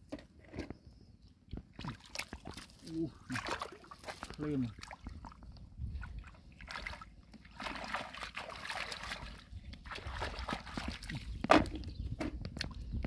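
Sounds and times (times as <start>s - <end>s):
shallow water sloshing: 1.7s - 12.8s.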